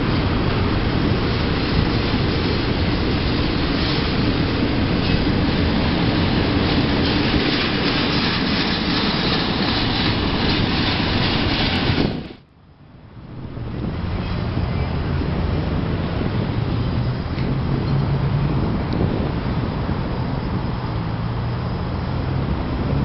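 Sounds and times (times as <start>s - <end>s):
freight train wheels rumbling on rail: 0.0s - 23.0s.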